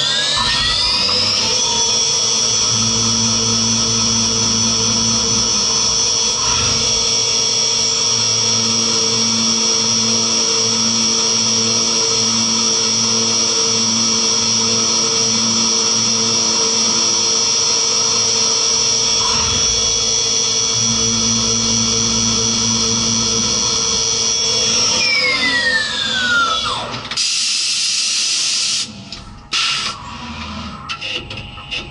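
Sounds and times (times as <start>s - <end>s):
milling machine cutting metal: 0.0s - 31.9s
spindle high whine: 0.0s - 31.9s.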